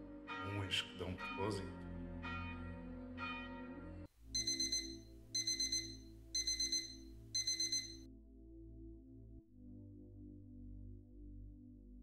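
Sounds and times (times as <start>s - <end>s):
alarm clock beeping: 4.4s - 8.0s
bell ringing: 4.4s - 8.0s.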